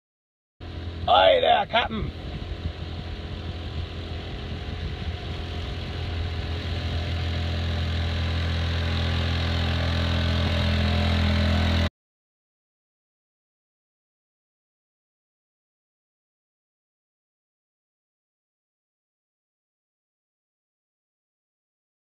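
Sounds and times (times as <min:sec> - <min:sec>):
small outboard motor running: 0:00.6 - 0:11.9.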